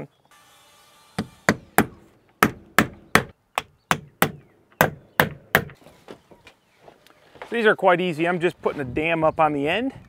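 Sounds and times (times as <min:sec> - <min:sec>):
hammer striking nails into wood: 0:01.2 - 0:05.8.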